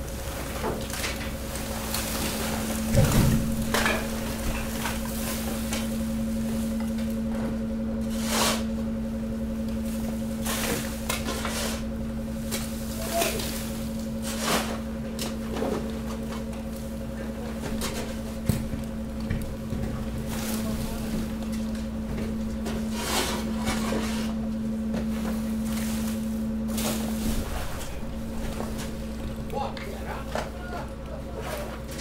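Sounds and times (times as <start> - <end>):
hydraulic unit humming: 0.0 - 32.0
garbage bags rustling and thudding: 0.1 - 7.9, 9.8 - 32.0.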